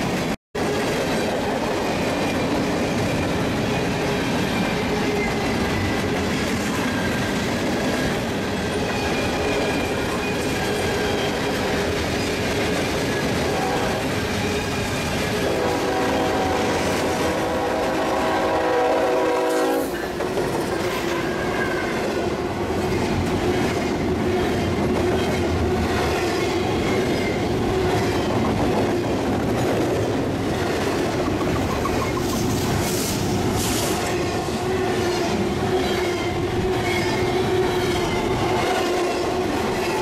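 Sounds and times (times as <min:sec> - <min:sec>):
train wheels clattering on rails: 0:00.0 - 0:40.0
train horn chord: 0:15.4 - 0:19.9.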